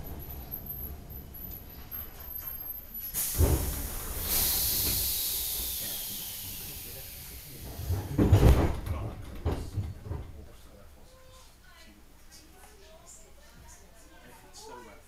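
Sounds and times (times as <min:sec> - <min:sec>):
compressed air hissing: 0:03.1 - 0:07.9.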